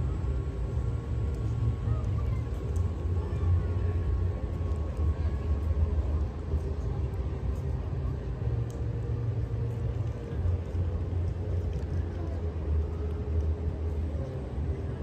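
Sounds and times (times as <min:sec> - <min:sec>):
faint street ambience: 0:00.0 - 0:15.0.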